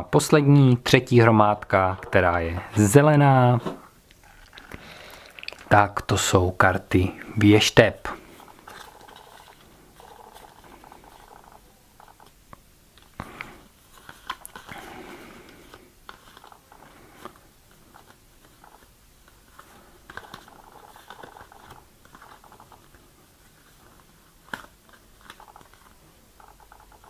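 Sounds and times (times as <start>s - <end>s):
cards rustling: 6.8s - 27.0s.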